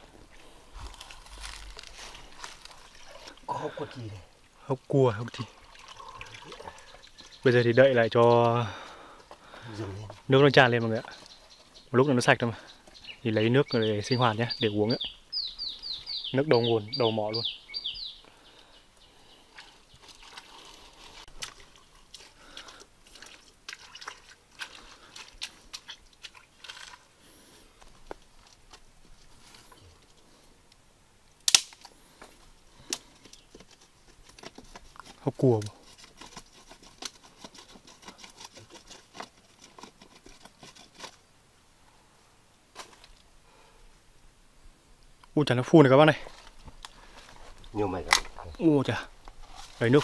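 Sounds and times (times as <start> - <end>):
small water splashes: 2.3 - 3.6, 5.2 - 7.4, 19.5 - 27.1
hands packing wet clay: 19.5 - 30.2, 32.8 - 41.3
stick scraping wet clay: 33.3 - 41.3.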